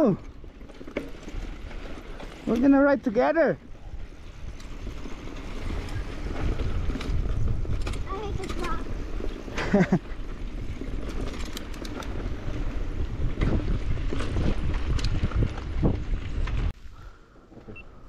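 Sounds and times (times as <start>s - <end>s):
mountain bike rattling on rocky trail: 0.0s - 16.8s
wind rumbling on microphone: 3.6s - 17.2s.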